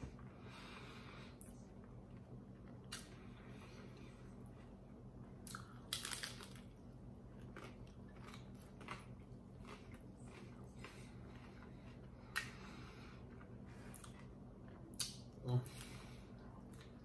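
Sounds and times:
chewing with small crunches: 1.3s - 17.0s
crunch of biting taco shell: 5.5s - 6.7s.

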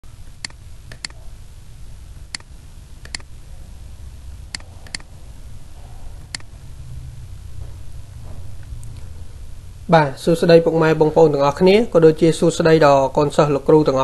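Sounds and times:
low steady hum: 0.0s - 14.0s
mouse buttons clicking: 0.4s - 1.2s, 2.3s - 3.3s, 4.5s - 5.1s.

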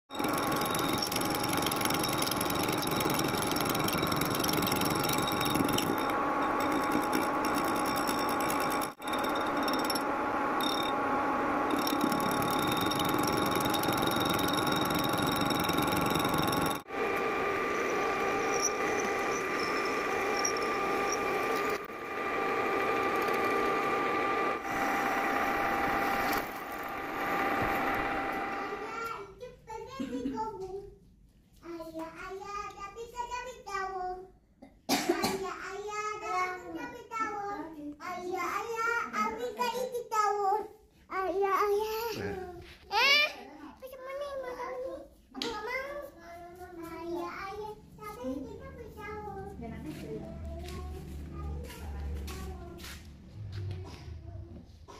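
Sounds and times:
metal lathe machining steel: 0.1s - 28.8s.

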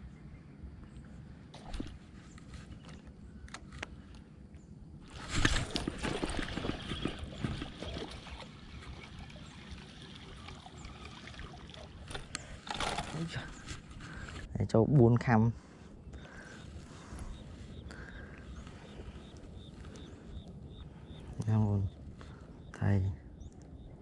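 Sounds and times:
water splashing: 5.1s - 13.3s.

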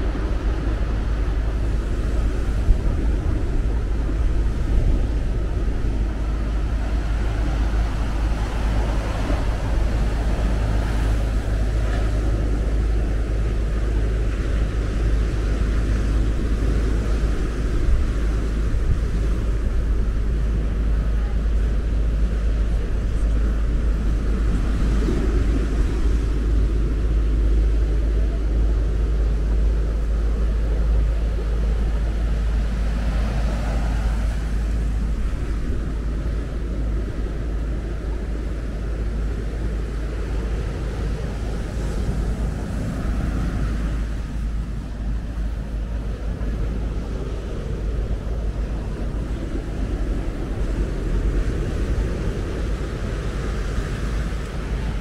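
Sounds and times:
breaking surf: 0.0s - 55.0s
wind buffeting microphone: 0.0s - 55.0s.

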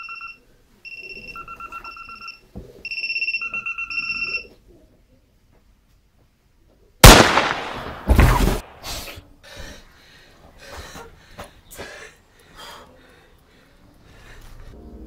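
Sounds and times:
heavy burst: 7.0s - 8.9s
loud bang: 7.0s - 8.9s.

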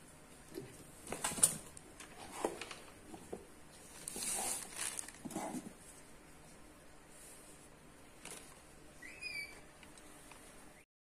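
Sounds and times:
plastic bags crinkling: 3.8s - 5.6s.

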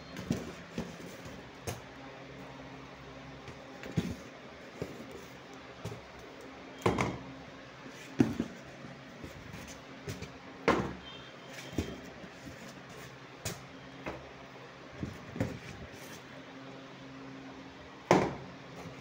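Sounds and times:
cardboard box knocks and thuds: 8.1s - 8.6s.

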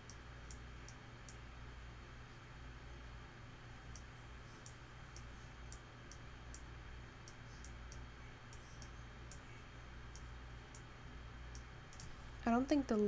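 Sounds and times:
faint low hum: 0.0s - 13.0s
computer mouse clicking: 3.9s - 9.4s, 11.5s - 12.2s.

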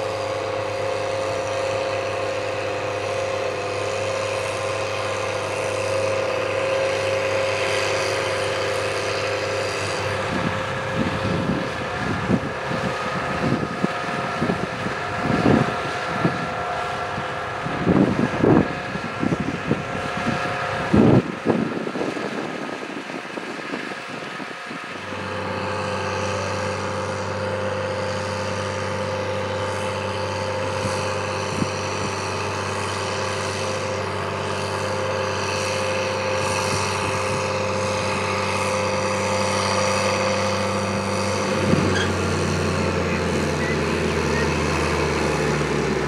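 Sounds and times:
tractor diesel engine running: 0.0s - 46.0s
wind gusts on microphone: 10.0s - 25.6s, 39.5s - 46.0s.

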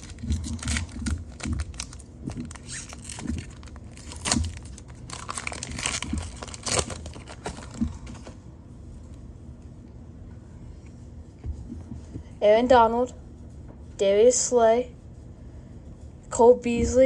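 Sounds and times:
foil wrapper crinkling and tearing: 0.0s - 8.3s.

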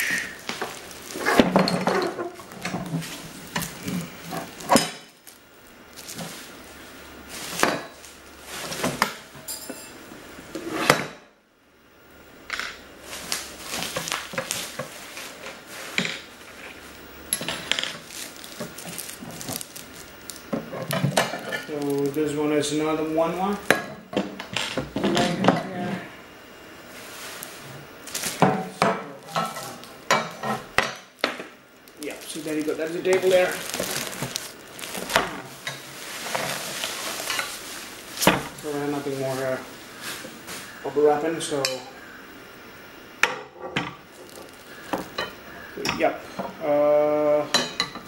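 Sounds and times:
plastic sheeting rustling: 0.0s - 9.3s, 13.0s - 17.0s, 17.6s - 23.7s, 26.9s - 28.4s, 31.8s - 41.0s, 44.0s - 45.0s
table parts clattering: 17.3s - 19.7s.

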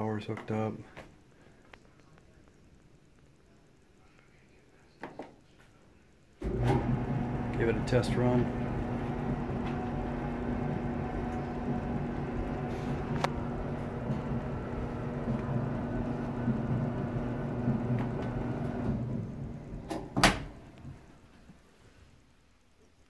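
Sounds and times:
dryer humming: 6.4s - 21.6s.

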